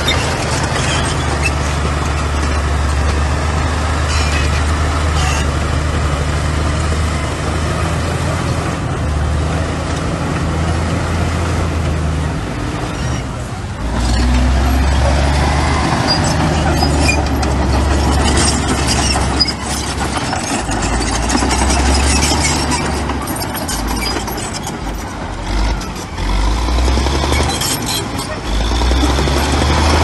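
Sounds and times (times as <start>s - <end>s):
high squeaks and clinks: 0.0s - 3.0s, 4.0s - 5.6s, 15.7s - 26.1s, 27.2s - 29.1s
diesel machinery engine drone: 0.0s - 30.0s.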